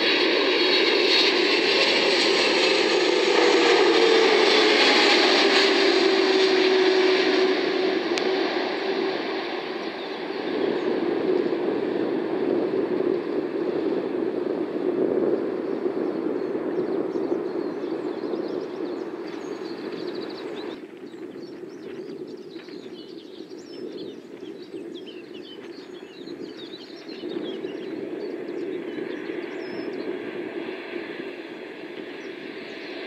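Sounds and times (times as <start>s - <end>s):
jet engines rushing: 0.0s - 33.0s
birds chirping: 16.4s - 30.2s.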